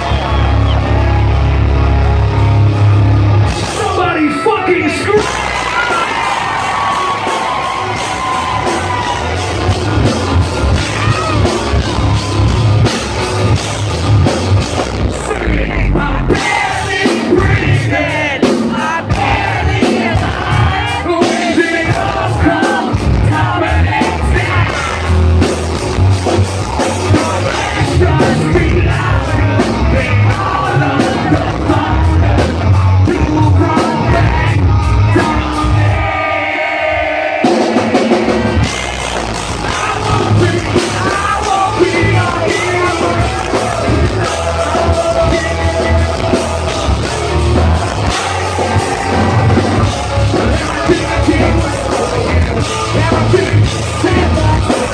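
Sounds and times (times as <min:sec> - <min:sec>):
live rock band playing: 0:00.0 - 0:54.9
person singing: 0:39.6 - 0:54.9.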